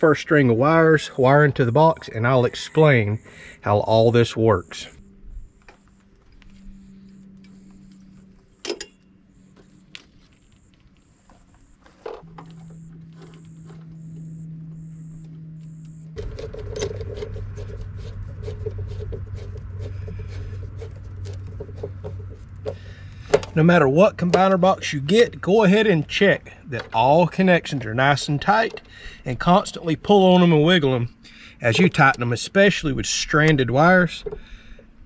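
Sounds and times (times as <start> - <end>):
steady low hum: 0.0 - 35.0
rustling: 9.4 - 23.6.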